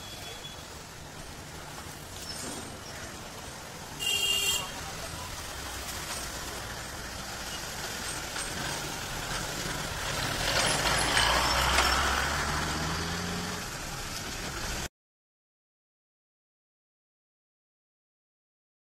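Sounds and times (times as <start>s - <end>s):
street traffic: 0.0s - 14.9s
truck driving past: 5.0s - 14.9s.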